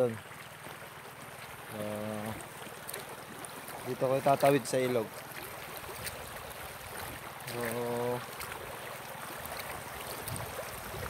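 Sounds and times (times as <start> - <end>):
river running over rocks: 0.0 - 11.0.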